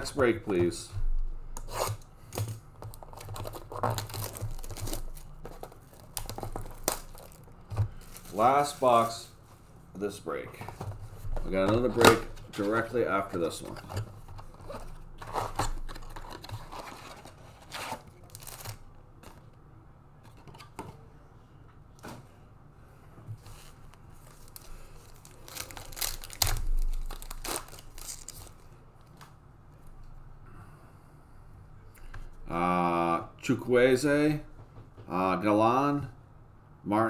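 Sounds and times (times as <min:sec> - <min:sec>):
foil wrapper ripping and crinkling: 0:02.9 - 0:08.8, 0:15.2 - 0:18.9, 0:23.5 - 0:28.7.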